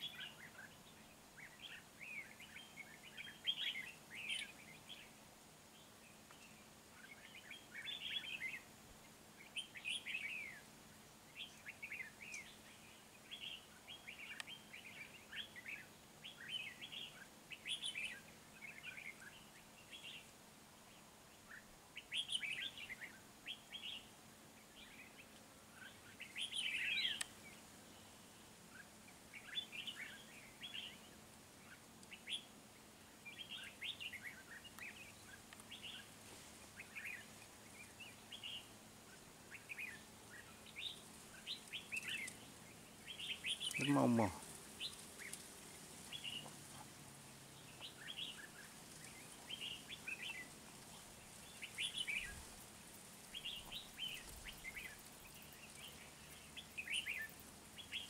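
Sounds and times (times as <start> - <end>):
birds singing and calling: 0.0 - 20.3, 20.9 - 32.5, 33.1 - 52.6, 53.2 - 58.0.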